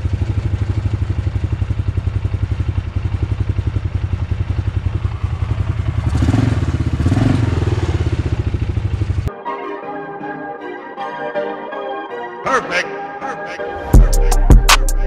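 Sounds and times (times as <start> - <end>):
engine idling and revving: 0.0 - 9.3.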